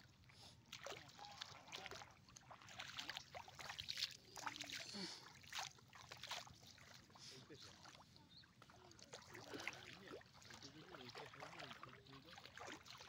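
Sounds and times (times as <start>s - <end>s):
shallow water splashing: 8.7s - 13.0s.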